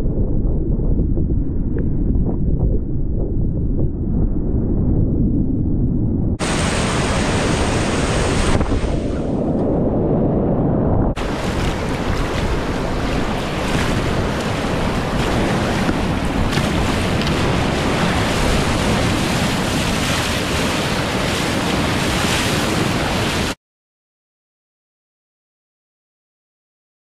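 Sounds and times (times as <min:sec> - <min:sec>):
wind buffeting microphone: 0:00.0 - 0:23.6
whitewater river rushing: 0:06.4 - 0:08.6, 0:11.2 - 0:23.6
bow splashing through waves: 0:06.4 - 0:09.7, 0:11.2 - 0:23.6
paddle strokes: 0:11.2 - 0:23.6.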